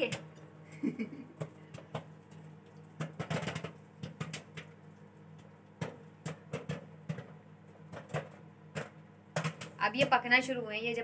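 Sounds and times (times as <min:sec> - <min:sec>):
microwave oven humming: 0:00.0 - 0:11.0
popcorn popping: 0:00.0 - 0:11.0.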